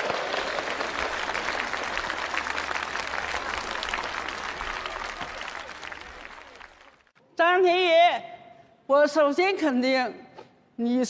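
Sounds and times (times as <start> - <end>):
crowd applauding: 0.0 - 7.2.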